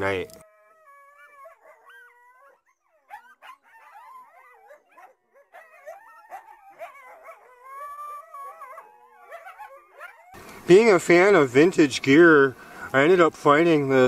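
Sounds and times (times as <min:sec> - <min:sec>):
dogs howling and yipping: 0:00.4 - 0:10.4.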